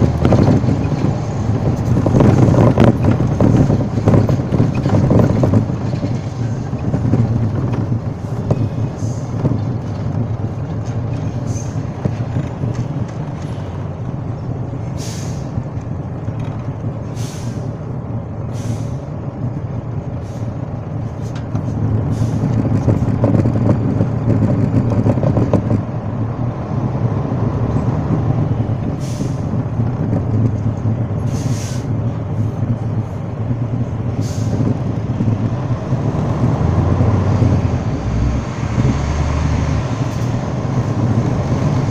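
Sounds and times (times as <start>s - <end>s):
truck engines rumbling: 0.0s - 41.9s
air-brake hisses: 15.0s - 15.5s, 17.1s - 17.7s, 18.5s - 19.0s, 31.3s - 31.9s.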